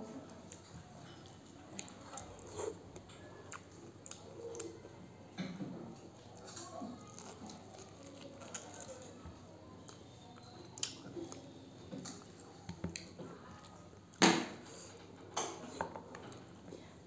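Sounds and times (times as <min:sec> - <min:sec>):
person chewing with mouth clicks: 0:01.7 - 0:04.8.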